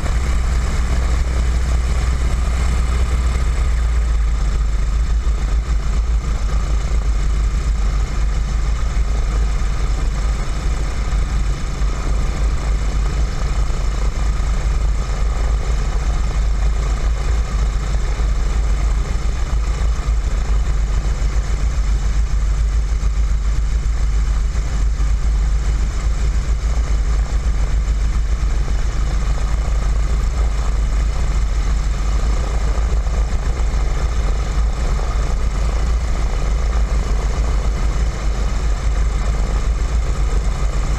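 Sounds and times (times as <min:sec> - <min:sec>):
radial engine deep rumble: 0:00.0 - 0:40.9.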